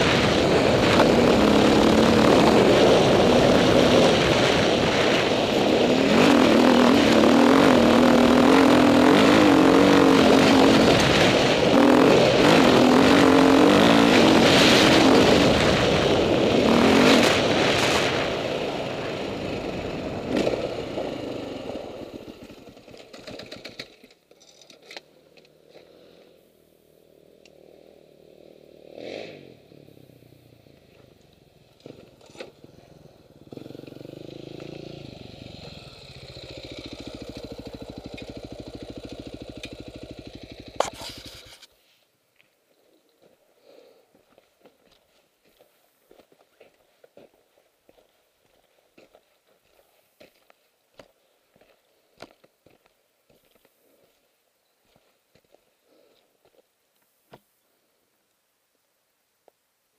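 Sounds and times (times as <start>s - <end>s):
dirt bike engine revving: 0.0s - 23.7s, 31.7s - 41.6s
distant motorcycle: 0.0s - 41.8s.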